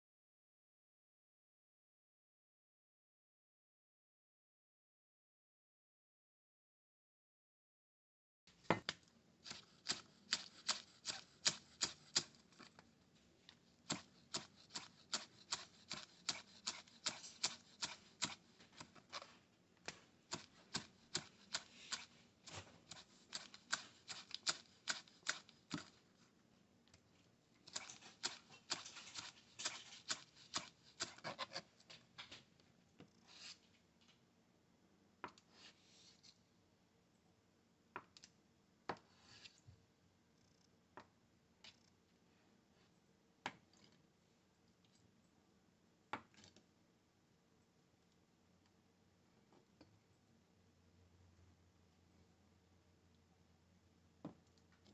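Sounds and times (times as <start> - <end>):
knife chopping on plastic board: 9.5 - 12.3, 13.9 - 18.9, 20.3 - 25.9.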